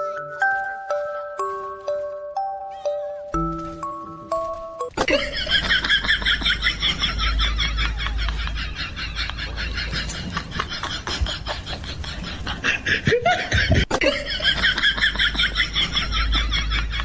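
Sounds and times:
person laughing: 5.0 - 17.0.

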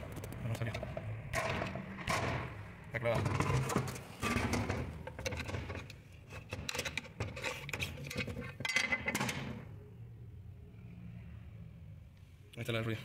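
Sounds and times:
hands scraping and clicking rubber: 5.1 - 8.7.

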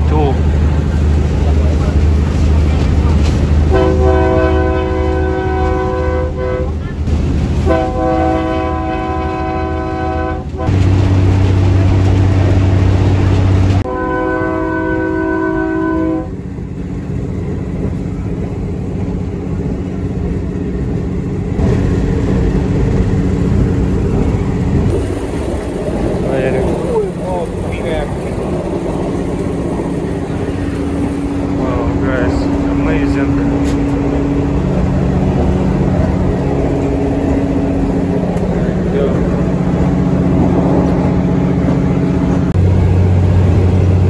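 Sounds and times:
train rumbling on rails: 0.0 - 44.0
train horn blasts: 3.7 - 6.8, 7.6 - 10.8, 13.8 - 16.4.

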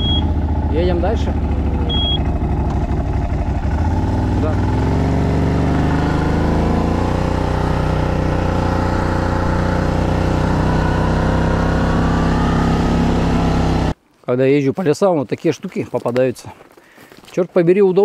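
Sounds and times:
atv engine running: 0.0 - 14.0.

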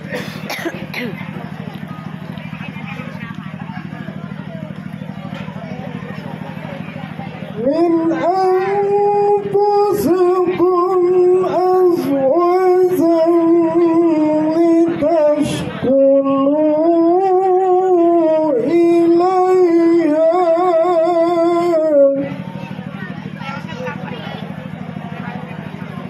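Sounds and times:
man chanting melodically: 7.6 - 22.4.

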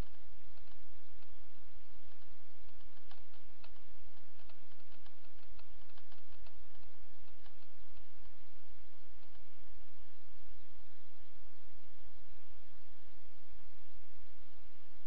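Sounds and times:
faint ticks: 0.0 - 10.8
low electrical hum: 0.0 - 15.0.

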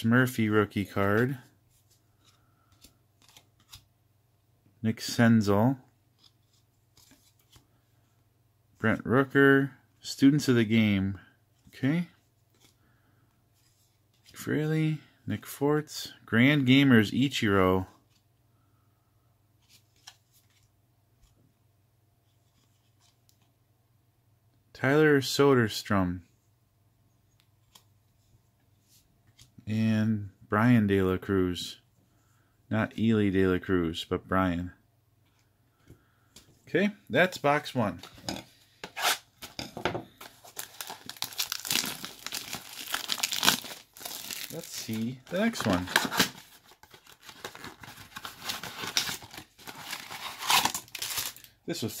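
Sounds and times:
trading cards rustling and clicking: 0.8 - 3.9, 37.9 - 51.5
plastic wrapping crinkling and tearing: 40.2 - 51.5.

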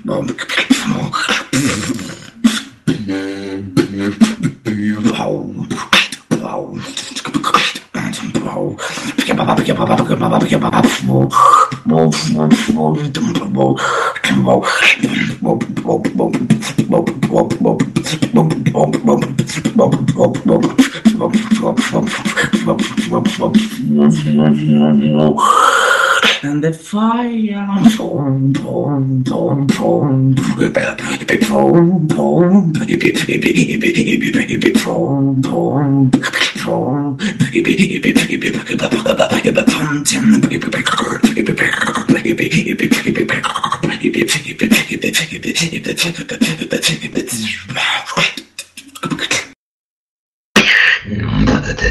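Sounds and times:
low beatboxed bass: 0.0 - 25.4, 27.8 - 49.6
beatboxing clicks and snares: 0.0 - 26.6, 27.8 - 49.6
sung bass-like notes: 23.1 - 25.4, 31.5 - 32.9.

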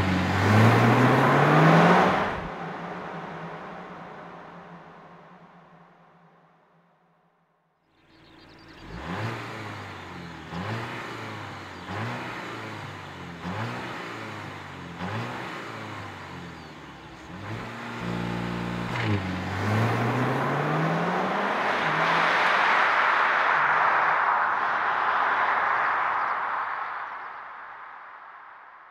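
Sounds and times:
car engine revving: 0.0 - 5.8, 8.1 - 24.0.

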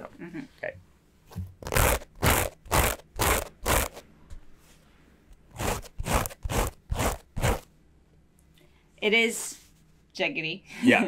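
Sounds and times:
denim fabric being scratched: 1.6 - 4.0, 5.5 - 7.7.

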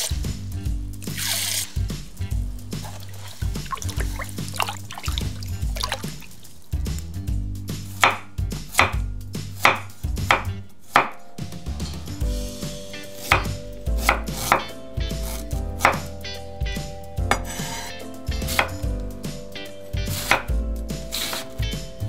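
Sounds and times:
knife chopping on wooden board: 7.9 - 11.2, 13.2 - 16.1, 17.3 - 18.8, 20.0 - 20.5.

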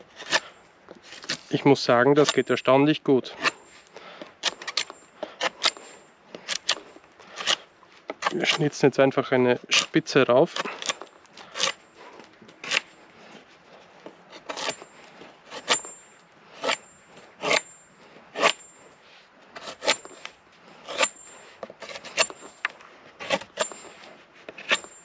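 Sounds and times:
machete slicing wood: 0.2 - 0.5, 1.1 - 1.5, 4.4 - 8.7, 12.6 - 12.9, 14.3 - 14.8, 21.8 - 23.9
faint high blade ring: 14.4 - 20.3, 20.9 - 22.6, 23.4 - 24.1, 24.7 - 25.0.

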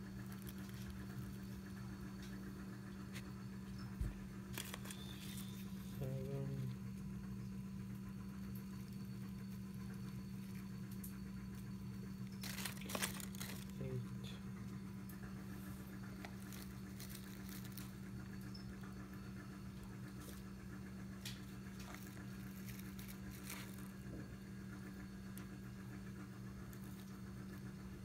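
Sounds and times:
low electrical hum: 0.0 - 28.0
dry leaves crinkling: 0.2 - 1.3, 4.5 - 6.3, 12.2 - 14.1, 15.6 - 18.2, 21.3 - 24.2.

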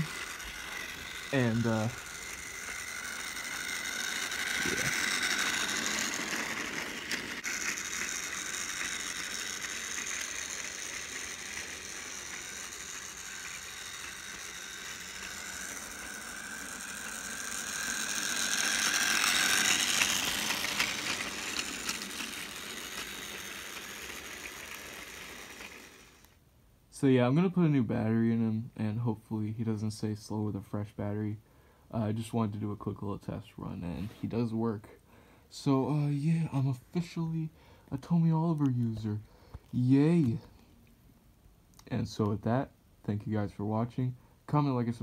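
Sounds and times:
toy train motor whirring: 0.0 - 26.4.

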